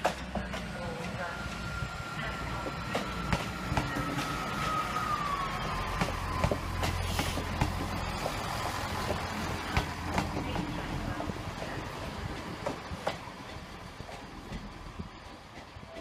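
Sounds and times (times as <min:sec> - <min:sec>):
train engine rumble: 0:00.0 - 0:16.0
wheels clicking over rail joints: 0:00.0 - 0:16.0
falling whine: 0:00.4 - 0:12.3.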